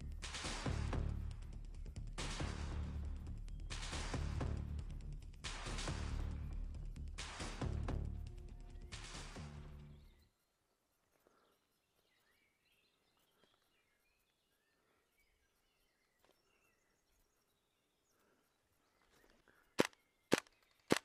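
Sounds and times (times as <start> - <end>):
background music: 0.0 - 10.2
faint bird chirps: 9.7 - 21.0.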